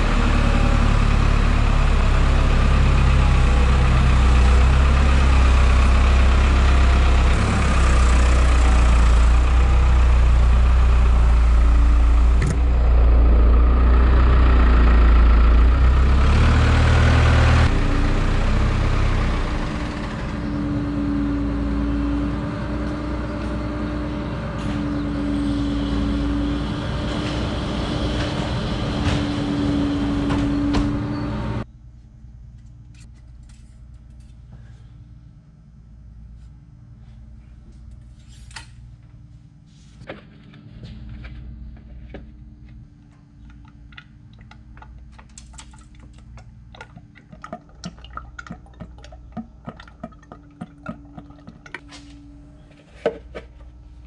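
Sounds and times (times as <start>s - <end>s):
diesel engine running: 0.0s - 31.8s.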